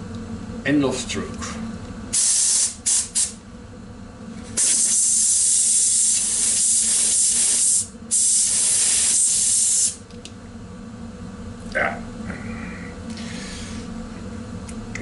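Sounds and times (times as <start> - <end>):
compressed air hissing: 2.1 - 3.4, 4.6 - 10.0, 13.1 - 13.9.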